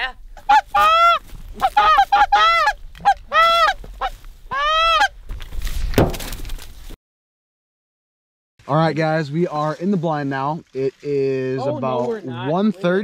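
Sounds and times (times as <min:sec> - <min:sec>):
goose honking: 0:00.0 - 0:05.2.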